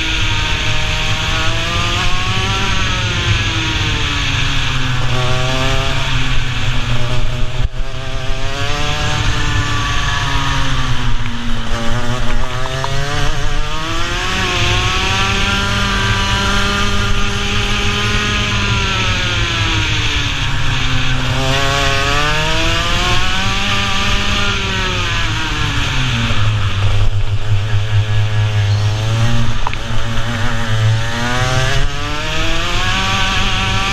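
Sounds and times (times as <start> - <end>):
kart engine revving: 0.0 - 33.9.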